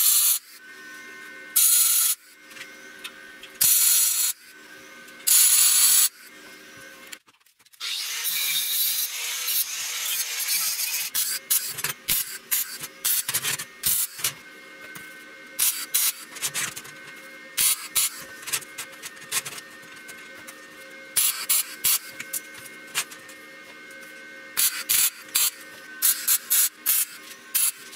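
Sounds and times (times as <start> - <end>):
arc welding crackle: 5.2 - 6.2, 8.0 - 14.3, 17.6 - 19.6, 21.2 - 23.1, 24.6 - 27.9.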